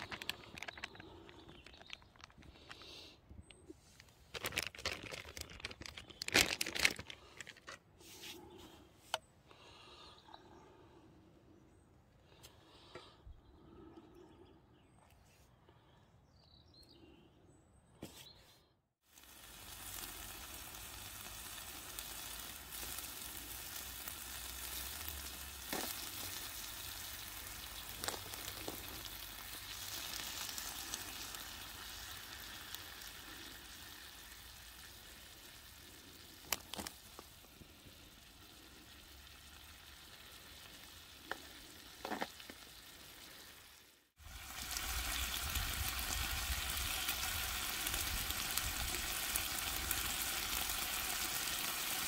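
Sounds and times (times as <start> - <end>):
chicken sizzling in a pan: 19.0 - 52.0.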